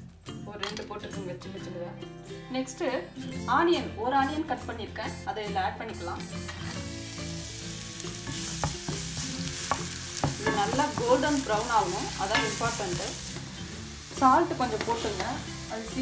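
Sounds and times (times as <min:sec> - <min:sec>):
onion sizzling in hot oil: 0:06.6 - 0:16.0
spatula knocking on pan: 0:08.3 - 0:13.5, 0:14.6 - 0:15.4.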